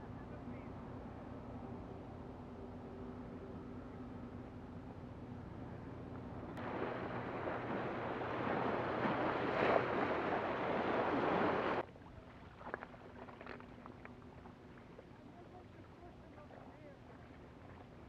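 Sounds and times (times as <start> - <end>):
waves splashing onto rocks: 6.6 - 11.8.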